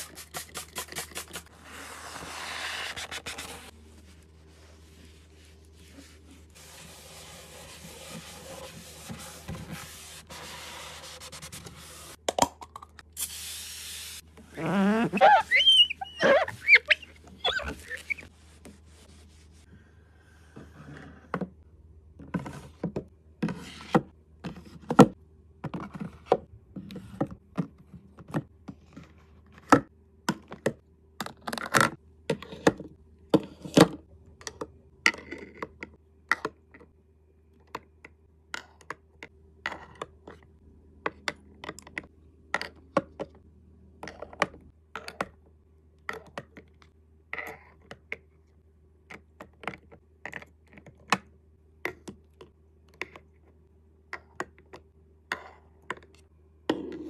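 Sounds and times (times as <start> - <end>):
rubbing and scraping: 0.0 - 12.2, 14.6 - 19.7.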